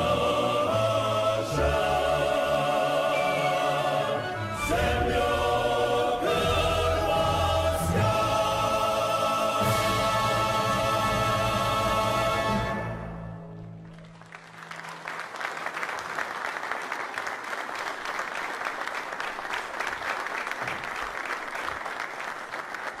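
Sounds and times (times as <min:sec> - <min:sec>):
male choir with orchestra: 0:00.0 - 0:13.6
audience applauding: 0:13.8 - 0:23.0.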